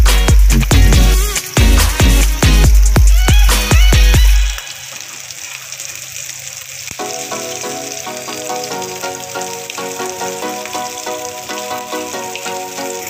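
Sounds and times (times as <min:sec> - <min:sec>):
oil sizzling in a pan: 0:00.0 - 0:13.0
light background music: 0:07.0 - 0:13.0.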